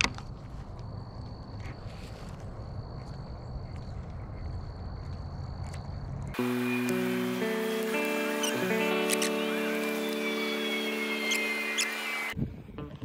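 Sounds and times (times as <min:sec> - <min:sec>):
insect high-pitched note: 0:06.4 - 0:12.4
music: 0:06.4 - 0:13.0.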